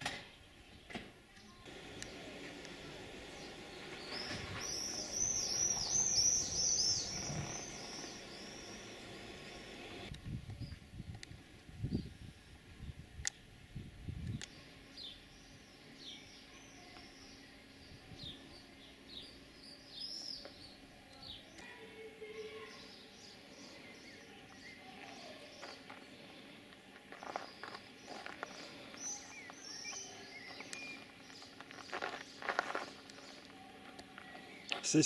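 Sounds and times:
small birds chirping: 0.3 - 35.0
footsteps on gravel: 25.0 - 26.2, 26.9 - 34.9.

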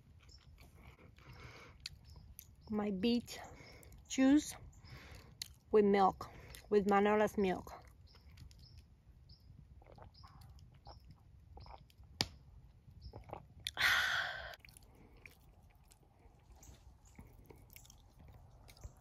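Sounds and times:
person sipping and swallowing: 13.0 - 19.0.

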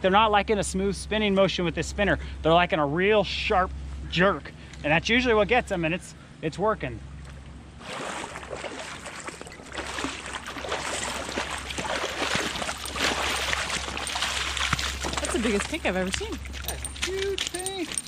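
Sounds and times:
fish splashing in water: 7.8 - 18.0.

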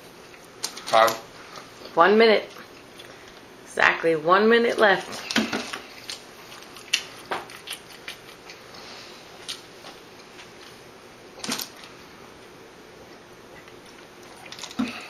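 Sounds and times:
eating clicks and smacks: 5.2 - 8.6.

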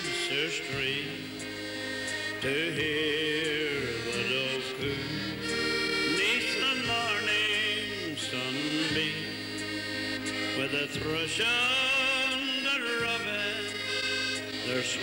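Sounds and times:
dance band music: 0.0 - 15.0.

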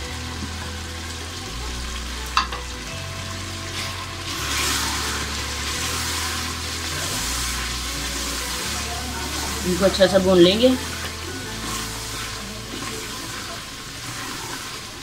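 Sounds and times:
food sizzling in a pot: 0.0 - 15.0
wooden spoon stirring: 4.4 - 15.0.

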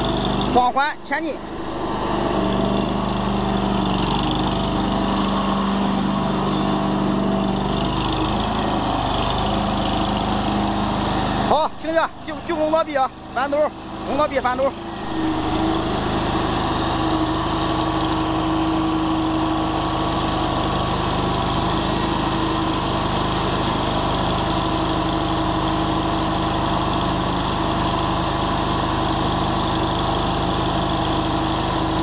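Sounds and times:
small loader engine running: 0.0 - 32.0.

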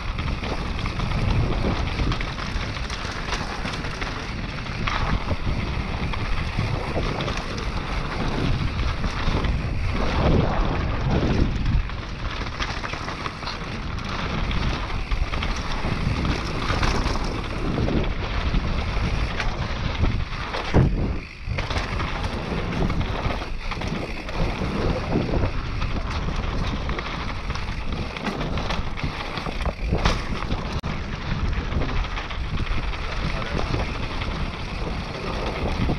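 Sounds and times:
bike tyres rumbling and rattling: 0.0 - 35.9
wind buffeting microphone: 0.0 - 35.9.

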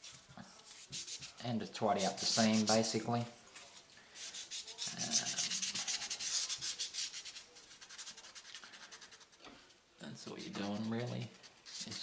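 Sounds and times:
sanding sponge scratching plastic: 2.0 - 2.9, 4.4 - 9.3, 10.3 - 12.0.

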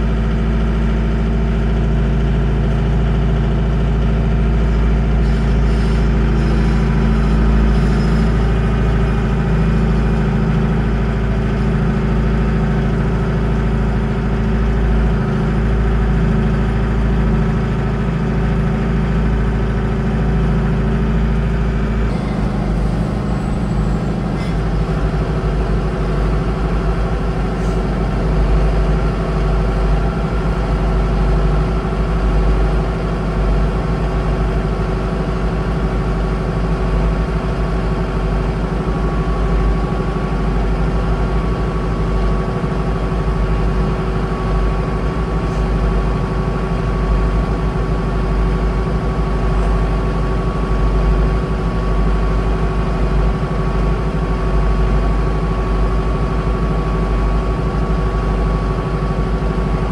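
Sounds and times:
diesel tractor engine running: 0.0 - 59.9.

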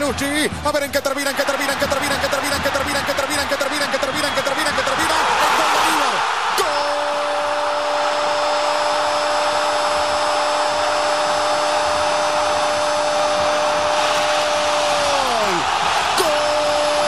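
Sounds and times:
commentator shouting goal cry: 0.0 - 17.0
stadium crowd cheering: 0.0 - 17.0.

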